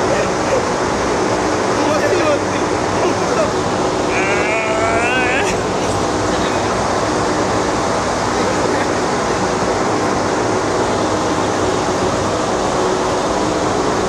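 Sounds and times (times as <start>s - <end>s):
machinery humming and rushing: 0.0s - 14.0s.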